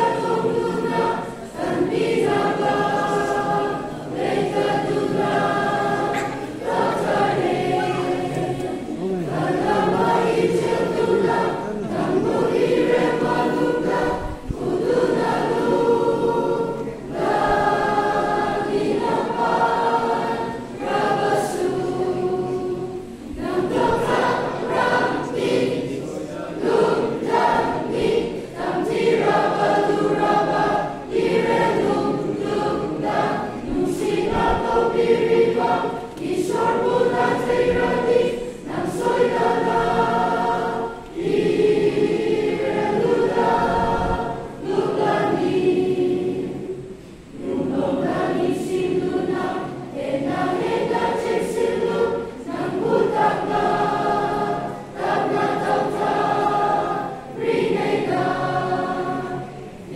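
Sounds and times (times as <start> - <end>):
choir of children and women singing: 0.0 - 59.9.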